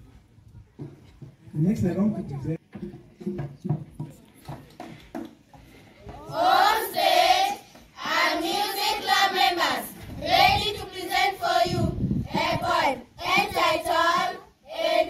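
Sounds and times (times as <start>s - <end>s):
children singing in unison: 6.2s - 15.0s.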